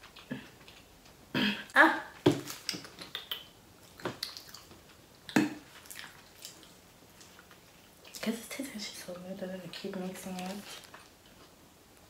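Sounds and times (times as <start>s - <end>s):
wet eating clicks and smacks: 2.5s - 8.2s.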